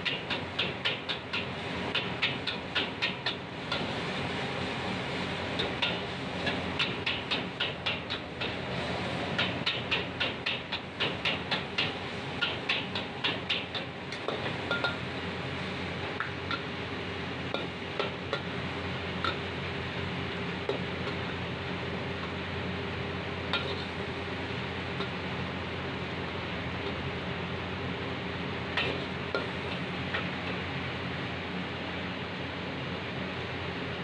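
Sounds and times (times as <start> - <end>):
food sizzling: 0.0 - 31.4
gas burner hiss: 0.0 - 32.7
metal ladle clanking on wok: 9.4 - 15.0, 23.5 - 24.0.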